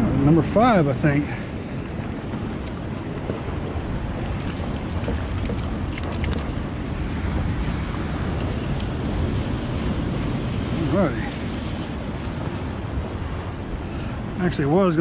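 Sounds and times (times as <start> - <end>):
wind buffeting microphone: 0.0 - 15.0
water lapping around boat: 0.5 - 15.0
faint clicks: 2.5 - 2.8.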